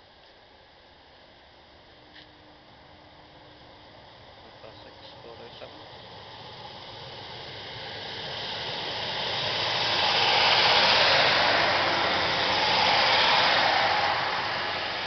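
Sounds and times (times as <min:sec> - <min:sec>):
diesel train passing: 0:00.9 - 0:15.0
train wheels on rails: 0:04.8 - 0:15.0.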